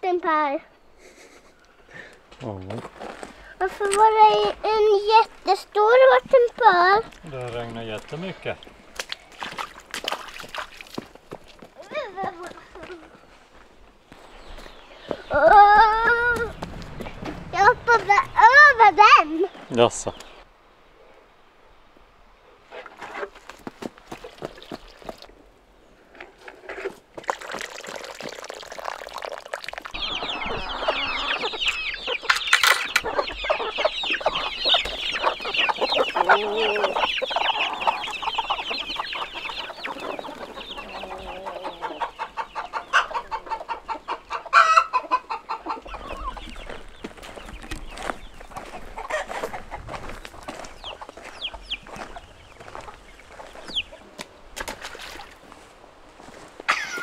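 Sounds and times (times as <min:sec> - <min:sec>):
chickens clucking and squawking: 0:00.7 - 0:02.2, 0:11.7 - 0:20.4, 0:29.9 - 0:54.5, 0:56.7 - 0:57.0.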